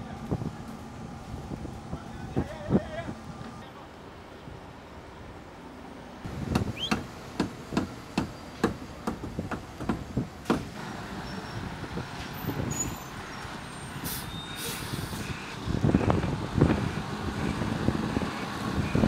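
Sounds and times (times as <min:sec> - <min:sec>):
diesel truck engine rumbling: 0:00.0 - 0:19.0
air hiss: 0:14.0 - 0:15.3.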